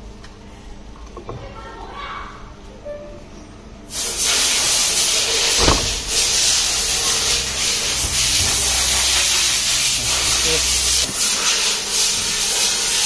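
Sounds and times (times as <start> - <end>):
coffee machine steam hissing: 3.9 - 13.0
brief knock: 5.6 - 6.2.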